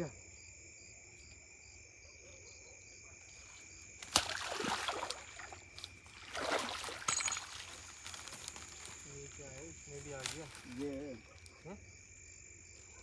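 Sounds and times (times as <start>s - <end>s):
crickets trilling: 0.0s - 13.0s
rustling of dry reeds: 3.4s - 11.6s.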